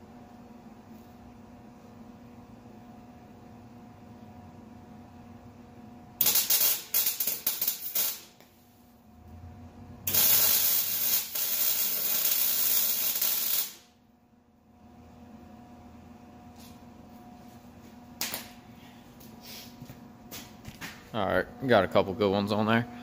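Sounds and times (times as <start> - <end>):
arc welder crackling: 6.2 - 9.4, 10.0 - 14.0, 18.2 - 18.6.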